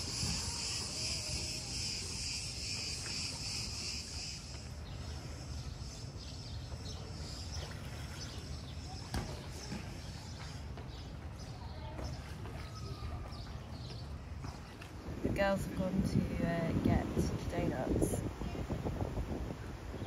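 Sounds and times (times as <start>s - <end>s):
cicadas buzzing: 0.0s - 10.9s.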